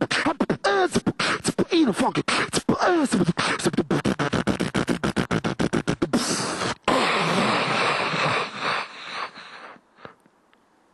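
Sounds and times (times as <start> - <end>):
beatboxing drum hits: 0.0 - 7.6
hissing scratchy mouth effects: 0.0 - 10.2.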